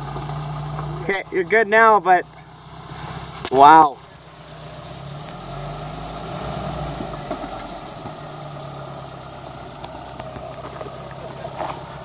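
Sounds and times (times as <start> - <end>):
suv engine at low revs: 0.0 - 12.0.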